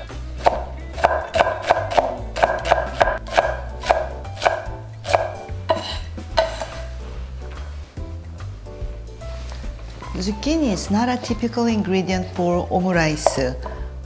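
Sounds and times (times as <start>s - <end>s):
knife chopping on wooden board: 0.4s - 5.8s.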